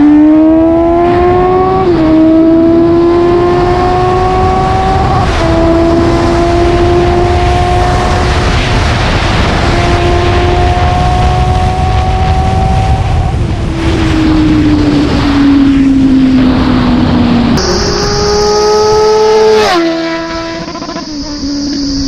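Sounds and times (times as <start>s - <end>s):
motorcycle engine accelerating: 0.0s - 22.0s
wind rushing over microphone: 0.0s - 22.0s
motorcycle passing by: 9.4s - 22.0s.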